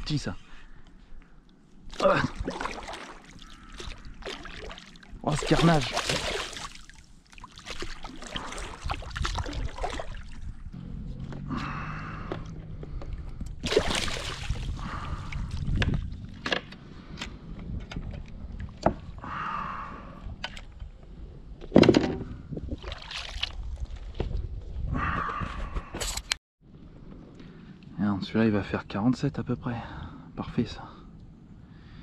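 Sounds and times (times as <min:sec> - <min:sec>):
fish splashing in water: 0:02.0 - 0:10.4, 0:13.6 - 0:15.1.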